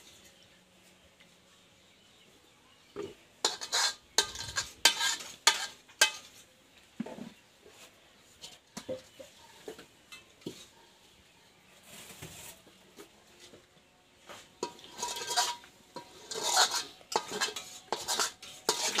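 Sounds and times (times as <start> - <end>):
metal spoon scraping wok: 3.4 - 6.5, 14.6 - 19.0.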